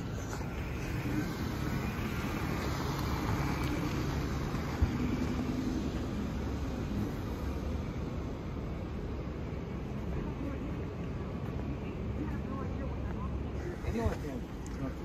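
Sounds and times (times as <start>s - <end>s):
tyre noise on asphalt: 0.0s - 9.1s
car engine passing: 0.0s - 10.4s.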